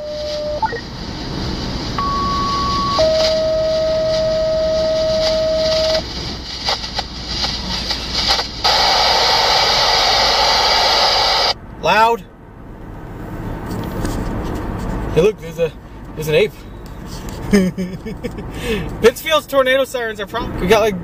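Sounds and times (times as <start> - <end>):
radio static hiss: 2.3 - 11.6.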